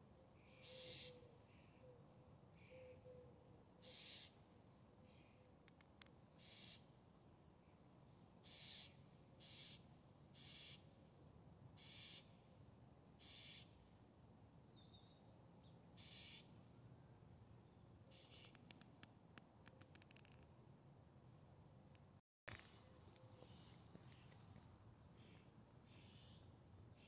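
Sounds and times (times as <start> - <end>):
faint bird chirps: 0.4 - 4.4, 21.7 - 27.0.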